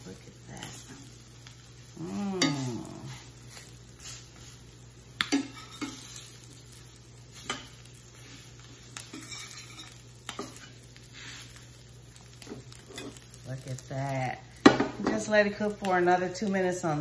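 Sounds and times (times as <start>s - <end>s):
food sizzling in butter: 0.0s - 17.0s
metal spatula scraping a skillet: 5.3s - 6.4s, 7.3s - 11.7s.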